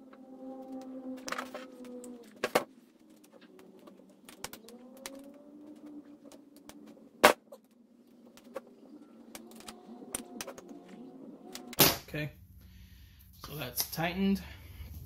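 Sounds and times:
pigeon cooing: 0.0s - 6.8s, 8.2s - 11.8s.

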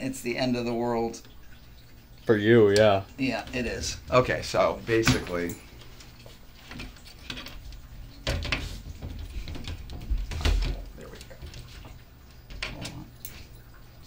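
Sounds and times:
glass doors clicking and knocking: 3.5s - 5.5s, 6.7s - 13.2s.

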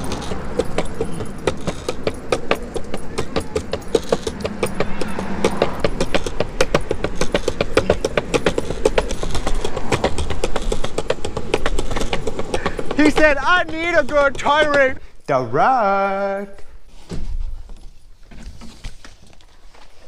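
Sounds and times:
rapid clicking and rattling: 0.0s - 15.0s
wheels rolling on concrete: 0.0s - 16.5s, 17.5s - 20.0s.

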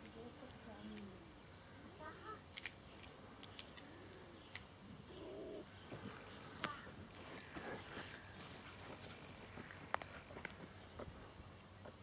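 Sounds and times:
faint outdoor background: 0.0s - 12.0s
bird cooing: 5.0s - 6.2s.

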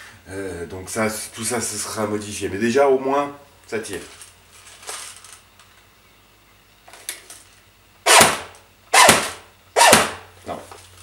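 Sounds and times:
airsoft gun shots: 8.0s - 10.3s.

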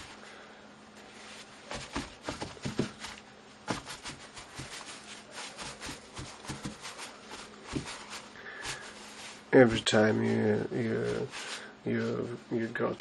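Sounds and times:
paper crinkling and tapping on canvas: 1.7s - 9.1s.

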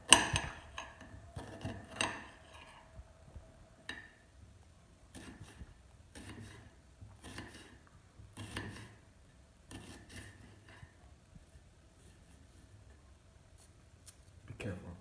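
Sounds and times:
knife slicing onion on plate: 7.2s - 7.8s.

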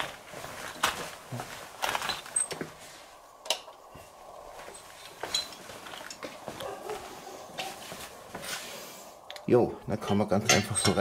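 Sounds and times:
footsteps in sandals on hard floor: 0.0s - 2.9s, 4.5s - 8.7s
faint handling noise: 0.0s - 9.5s.

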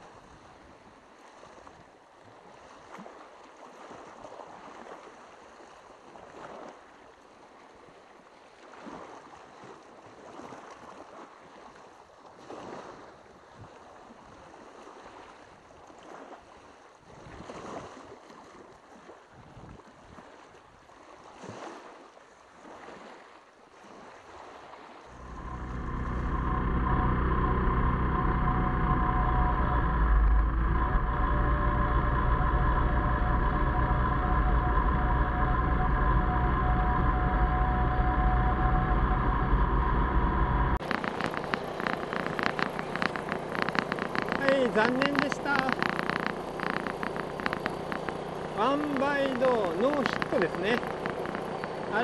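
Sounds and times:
scooter engine running: 25.1s - 52.0s.

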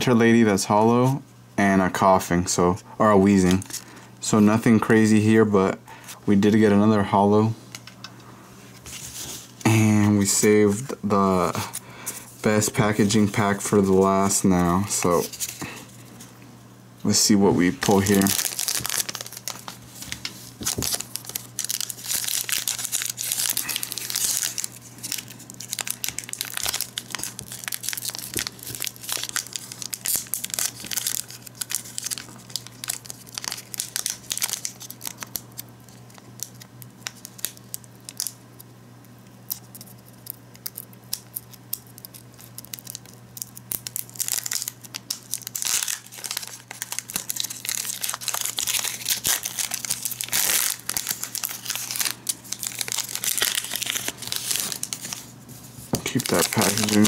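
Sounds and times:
foil wrapper crinkling and tearing: 3.3s - 4.6s, 17.2s - 38.6s, 39.2s - 57.0s.

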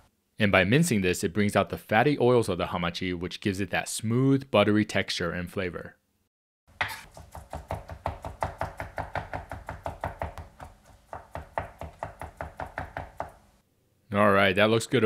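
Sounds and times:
knife chopping on cutting board: 6.8s - 13.4s.

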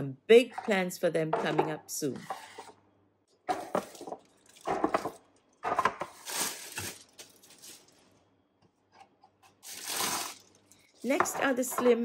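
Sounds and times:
plastic bins clattering: 3.5s - 7.9s
plastic bags crinkling: 3.5s - 8.2s, 9.6s - 11.2s.

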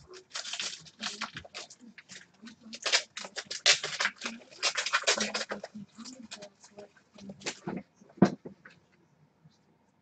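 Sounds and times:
card pack wrapper crinkling: 0.0s - 6.5s.

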